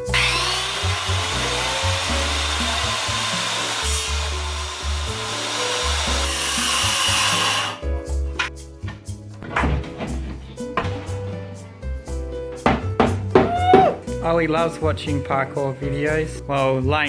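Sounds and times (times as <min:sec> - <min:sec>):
circular saw cutting wood: 0:00.0 - 0:07.9.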